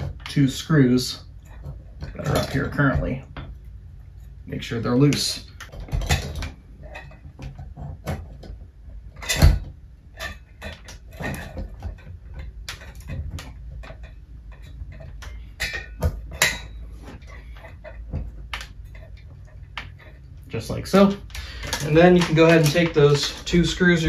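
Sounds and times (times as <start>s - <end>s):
metal fan housing clicking and knocking: 5.0s - 24.0s.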